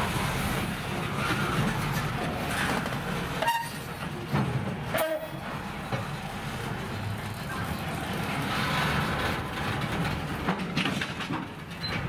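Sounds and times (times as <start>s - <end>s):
freight cars rolling on rails: 0.0s - 12.0s.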